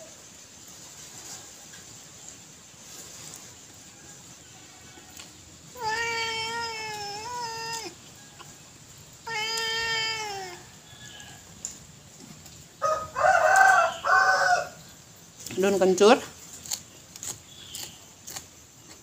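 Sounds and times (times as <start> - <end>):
long drawn-out animal calls: 4.7 - 11.5.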